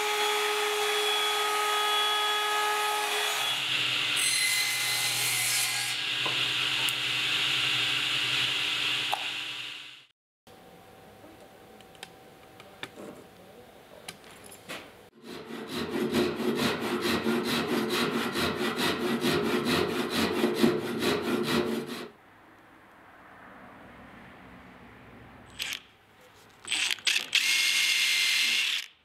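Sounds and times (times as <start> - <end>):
hand saw cutting wood: 15.2 - 22.2.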